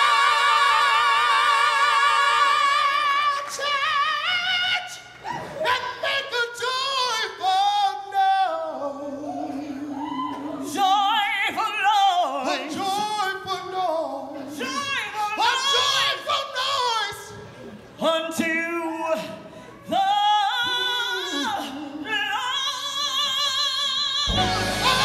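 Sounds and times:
gospel singers ad-libbing: 0:00.0 - 0:25.0.

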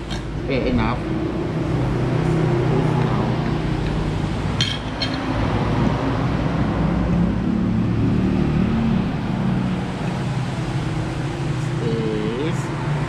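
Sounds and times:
road traffic rumble: 0:00.0 - 0:13.0
cutlery clinking on plate: 0:04.6 - 0:05.3.

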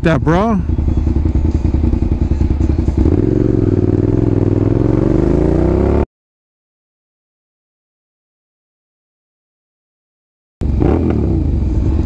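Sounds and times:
motorcycle engine accelerating: 0:00.0 - 0:06.1, 0:10.6 - 0:12.0.

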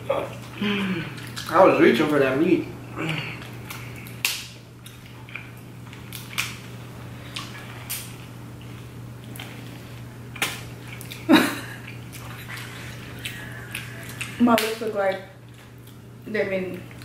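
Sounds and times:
lip smacking: 0:03.0 - 0:06.6, 0:07.2 - 0:16.0
crab shells cracking: 0:03.5 - 0:06.7.

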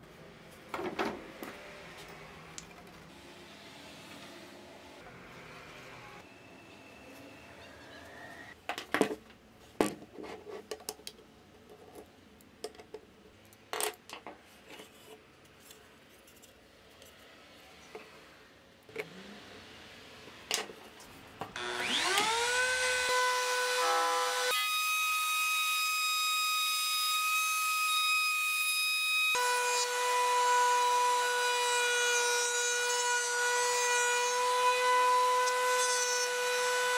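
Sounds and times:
router motor whine: 0:21.6 - 0:24.6.

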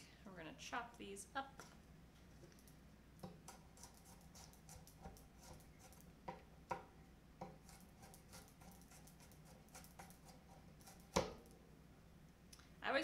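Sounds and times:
knife chopping on cutting board: 0:03.2 - 0:11.4.

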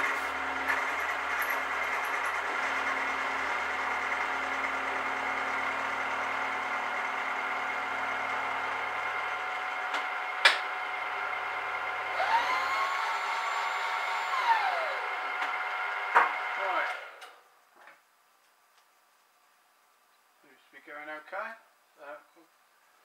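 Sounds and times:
machine whine: 0:00.0 - 0:17.2
motor hum: 0:00.0 - 0:17.4.

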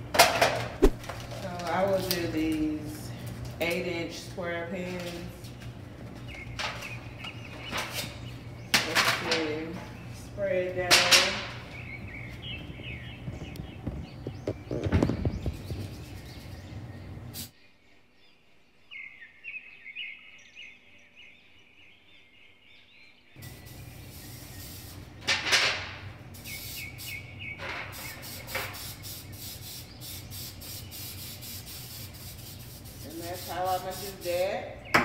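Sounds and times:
aerosol spray hissing: 0:23.4 - 0:25.1, 0:26.4 - 0:27.2, 0:27.9 - 0:34.5.

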